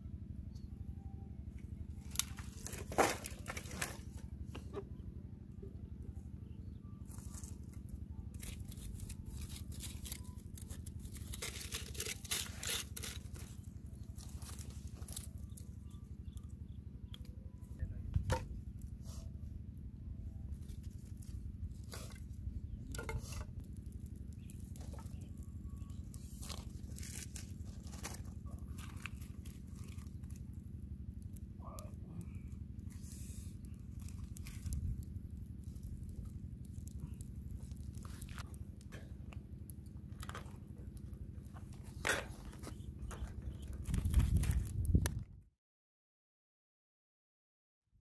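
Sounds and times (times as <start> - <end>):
steady low rumble: 0.0 - 45.4
campfire crackling: 1.9 - 4.3, 7.0 - 17.3, 18.0 - 45.2
sticks scraping through charcoal: 2.0 - 4.8, 7.1 - 16.4, 20.6 - 30.7, 32.8 - 39.1, 39.8 - 45.0
low wind rumble on microphone: 34.0 - 36.4, 43.0 - 45.5.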